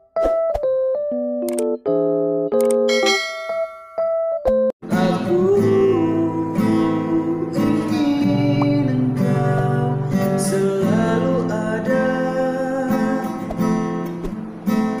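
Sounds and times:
acoustic guitar strumming: 0:02.9 - 0:03.8, 0:04.8 - 0:15.0
man singing: 0:04.8 - 0:13.5.

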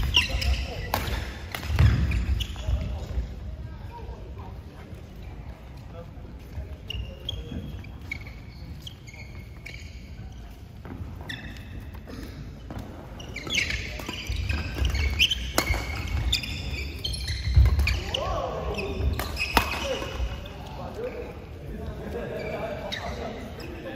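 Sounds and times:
racket hitting shuttlecock: 0:00.0 - 0:02.4, 0:12.7 - 0:16.7, 0:19.1 - 0:20.2
shoes squeaking on court: 0:00.0 - 0:03.5, 0:05.1 - 0:23.9.

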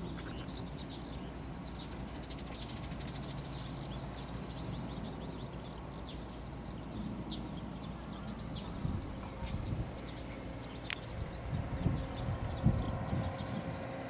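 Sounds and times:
low outdoor rumble: 0:00.0 - 0:14.0
small birds chirping: 0:00.0 - 0:14.0.

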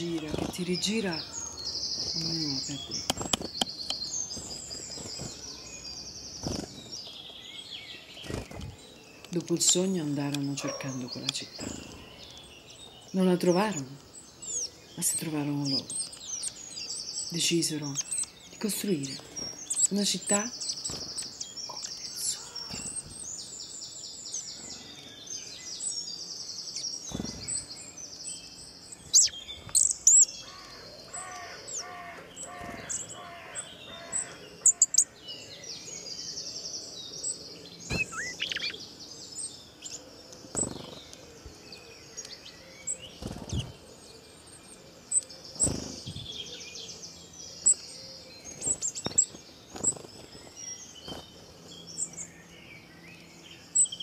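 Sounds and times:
small birds chirping and trilling: 0:00.0 - 0:54.0
sharp clicks: 0:02.9 - 0:04.0.

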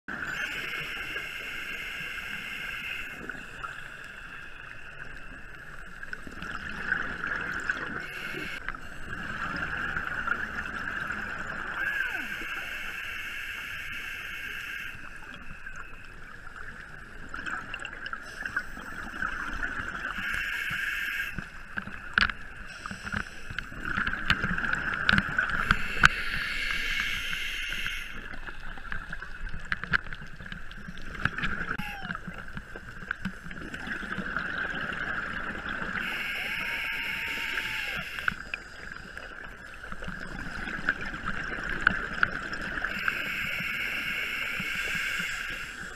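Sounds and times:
underwater hum: 0:00.1 - 0:45.9.

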